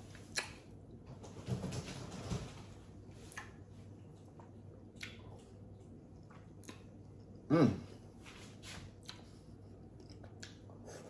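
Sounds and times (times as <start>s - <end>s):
chewing crunching pickle: 3.2s - 7.5s, 8.9s - 10.8s.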